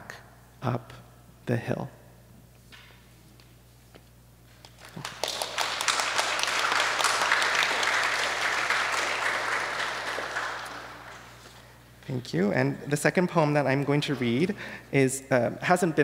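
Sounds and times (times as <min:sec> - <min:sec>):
audience applauding: 0:04.6 - 0:11.4.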